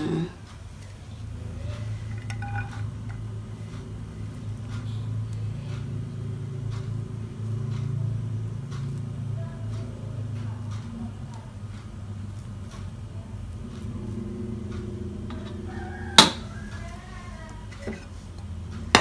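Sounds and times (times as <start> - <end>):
low hum: 0.0 - 19.0
utensils clinking on wok: 2.0 - 3.2.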